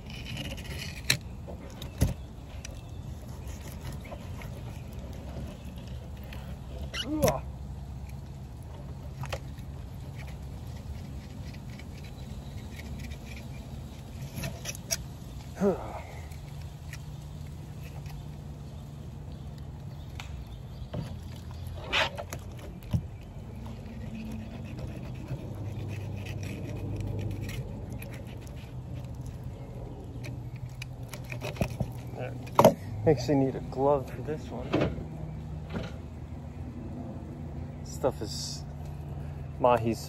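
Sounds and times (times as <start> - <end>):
knife scraping fish: 0.0 - 1.3, 2.6 - 7.2, 9.2 - 15.0, 21.7 - 29.5, 30.1 - 32.6.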